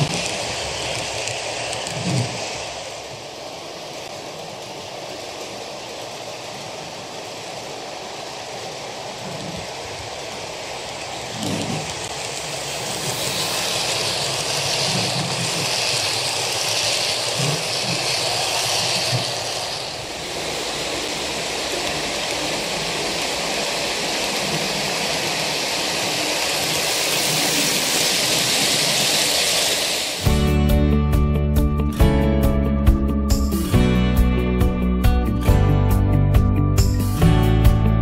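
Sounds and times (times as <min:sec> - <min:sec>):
model train motor and wheels: 0:00.0 - 0:30.4
acoustic guitar music: 0:30.3 - 0:38.0.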